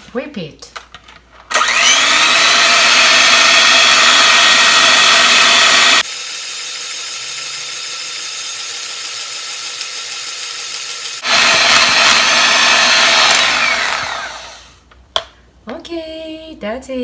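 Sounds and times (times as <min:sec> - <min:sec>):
electric hand mixer whipping cream: 0:01.5 - 0:14.8.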